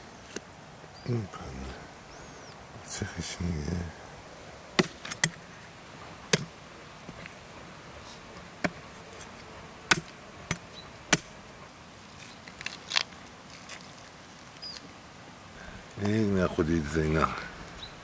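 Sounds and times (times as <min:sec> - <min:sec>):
blade chopping bone on wood: 0:09.9 - 0:11.3.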